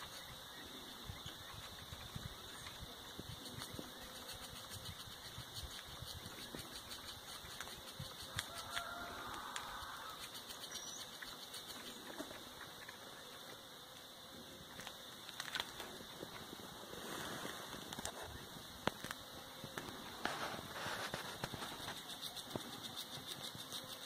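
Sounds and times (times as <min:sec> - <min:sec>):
squirrel gnawing: 0:01.3 - 0:13.1, 0:14.7 - 0:16.3.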